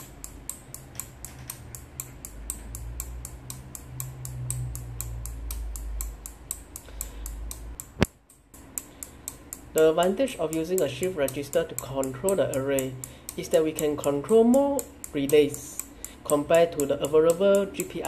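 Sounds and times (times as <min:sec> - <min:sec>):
relays clicking: 0:00.0 - 0:18.0.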